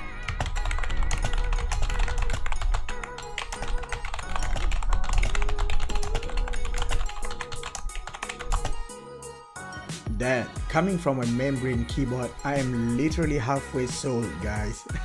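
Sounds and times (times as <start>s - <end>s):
keyboard typing: 0.0s - 9.0s
music with bass beat: 9.9s - 15.0s.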